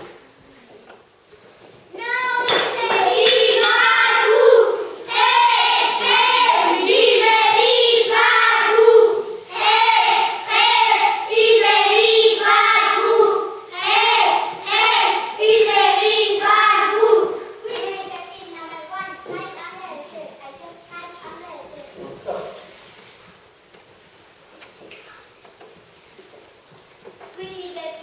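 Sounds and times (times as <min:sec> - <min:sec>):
children singing in unison: 0:02.4 - 0:17.6.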